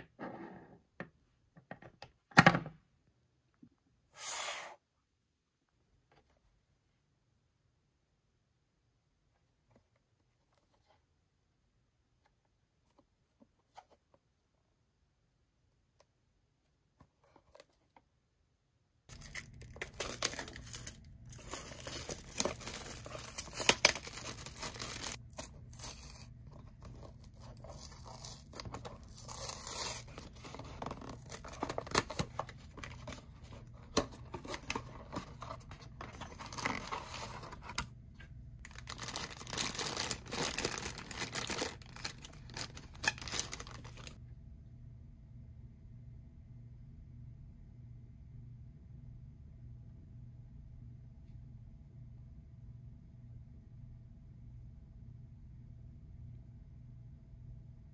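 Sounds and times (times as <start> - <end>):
packaging tearing and crinkling: 19.1 - 37.8, 38.7 - 44.2.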